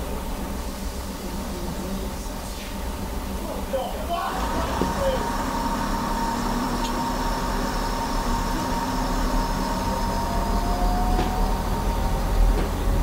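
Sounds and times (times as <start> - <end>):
diesel engines idling: 0.0 - 13.0
steady whine: 0.0 - 13.0
faint rising tone: 5.2 - 13.0.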